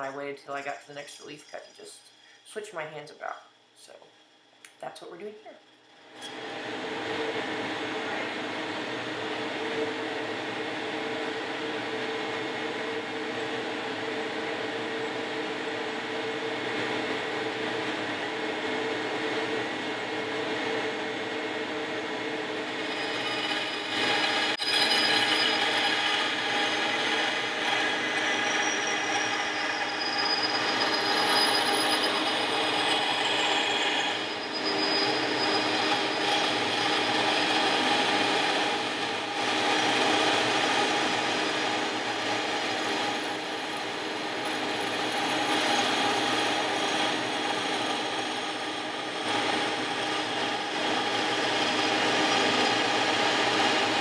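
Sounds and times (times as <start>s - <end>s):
band saw cutting aluminum: 22.8s - 54.0s.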